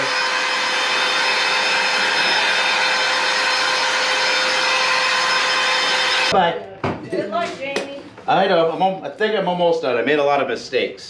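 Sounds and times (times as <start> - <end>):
electric air duster blowing: 0.0 - 6.3.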